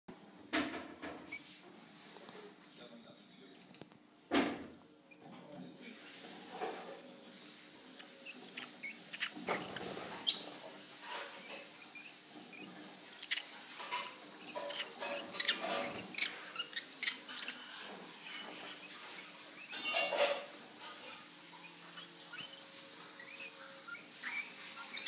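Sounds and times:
bird chicks chirping: 0:06.6 - 0:25.0.

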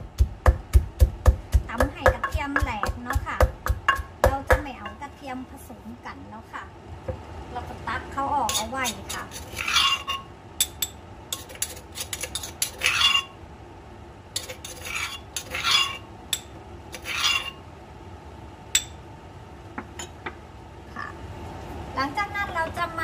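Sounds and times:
pestle pounding in a mortar: 0:00.0 - 0:05.0.

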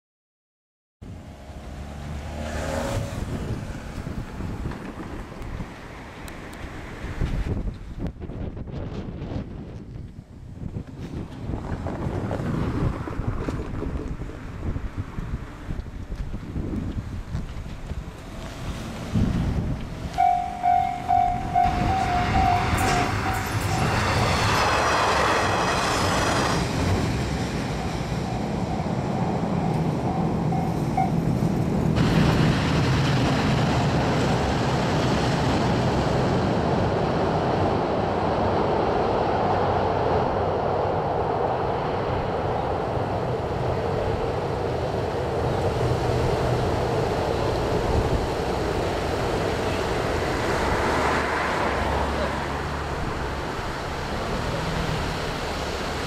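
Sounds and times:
train rumbling over bridge: 0:01.1 - 0:56.0
level-crossing bell dinging: 0:20.2 - 0:24.1, 0:27.8 - 0:31.2.

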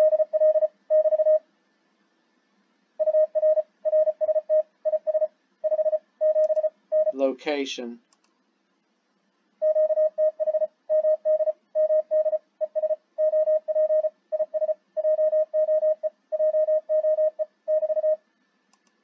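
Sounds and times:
morse code tone: 0:00.0 - 0:01.4, 0:09.6 - 0:18.2.

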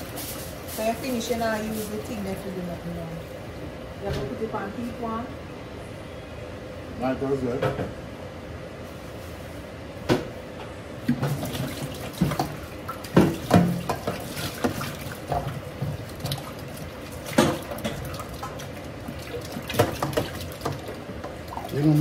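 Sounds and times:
tap running water into sink: 0:11.1 - 0:21.8.

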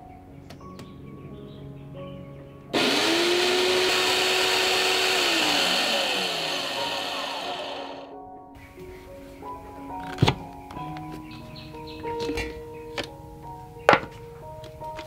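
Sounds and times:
blender motor whining: 0:02.8 - 0:08.1.

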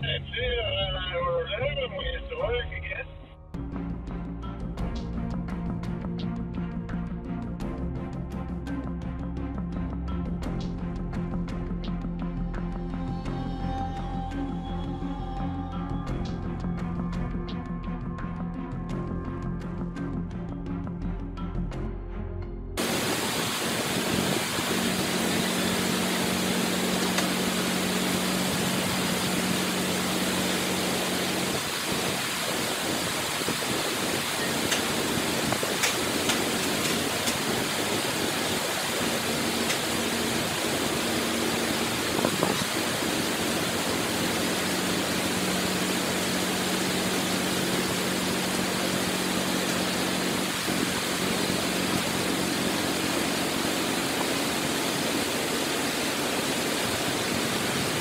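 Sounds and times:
bulldozer diesel engine humming: 0:22.8 - 0:58.0
loud rushing hiss: 0:22.8 - 0:58.0.

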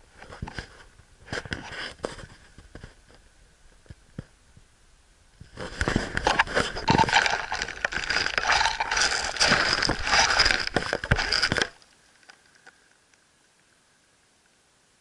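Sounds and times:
dry leaves rustling and crackling: 0:06.3 - 0:11.8.

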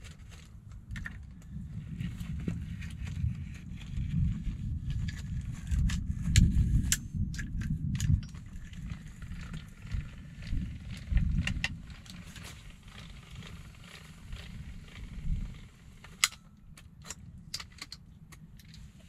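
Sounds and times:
low rumble: 0:00.7 - 0:17.6
crossbow parts clicking and knocking: 0:04.8 - 0:19.0.

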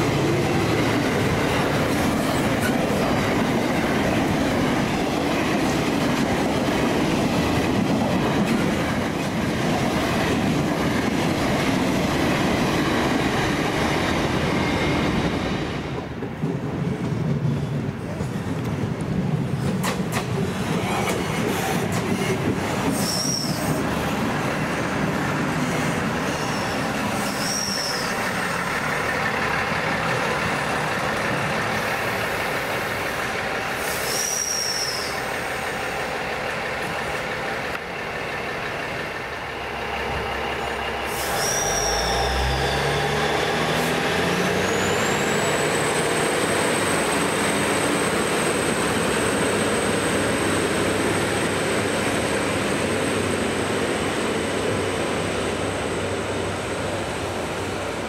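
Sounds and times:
railcar running in: 0:00.0 - 0:58.0
wheel squeals: 0:22.9 - 0:23.8, 0:26.3 - 0:28.3, 0:34.0 - 0:35.2, 0:40.6 - 0:43.5
diesel engines revving: 0:39.5 - 0:54.2.

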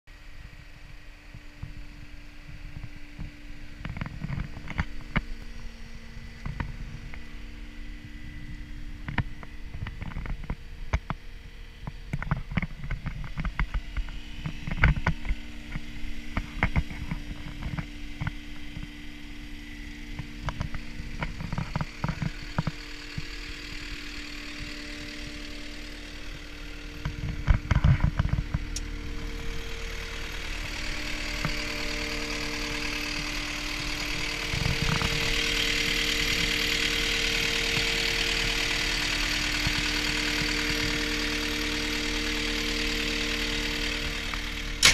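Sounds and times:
diesel engine idling: 0:00.1 - 0:44.9
sharp clicks: 0:43.5 - 0:44.9.

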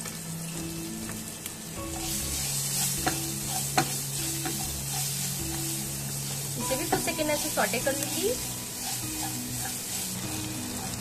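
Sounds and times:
onion sizzling in hot oil: 0:00.0 - 0:11.0
spatula knocking against pan: 0:03.0 - 0:04.7.

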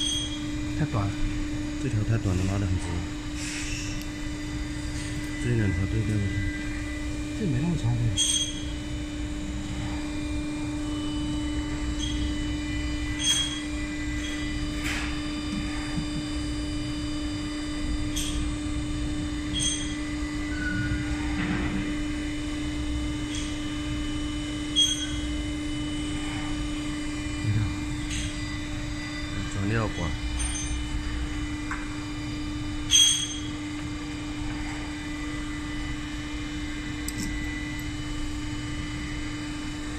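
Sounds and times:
machine hum: 0:00.0 - 0:39.9.

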